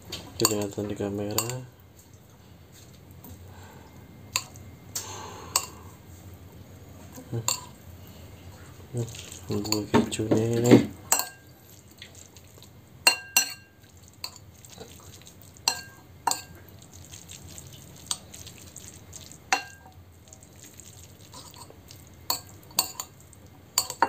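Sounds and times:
metal spoon clinking on ceramic bowl: 0:01.3 - 0:01.6, 0:07.4 - 0:07.7, 0:11.1 - 0:11.5, 0:13.0 - 0:14.4, 0:15.7 - 0:16.6, 0:19.5 - 0:19.9, 0:22.3 - 0:23.1, 0:23.8 - 0:24.0.

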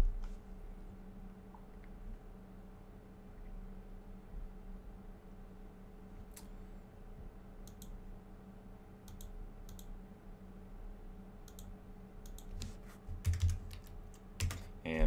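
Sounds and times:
low steady hum: 0:00.0 - 0:15.0
computer mouse clicking: 0:07.6 - 0:08.0, 0:09.1 - 0:09.9, 0:11.4 - 0:14.6.

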